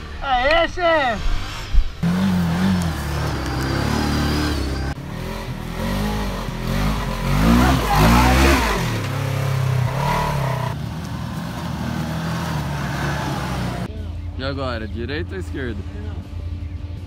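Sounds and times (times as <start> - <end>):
engines revving: 1.4 - 13.9.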